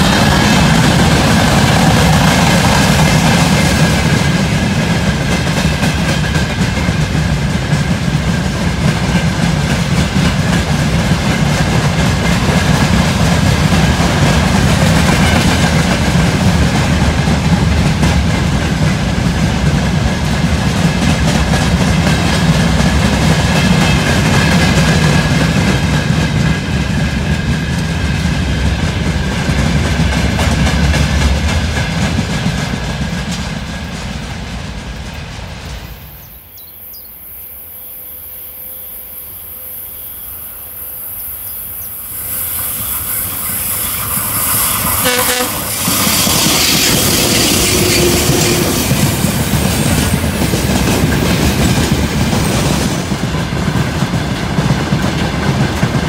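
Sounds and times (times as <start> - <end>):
wheels clacking over rail joints: 0.0 - 35.9
freight train rumbling on rails: 0.0 - 56.0.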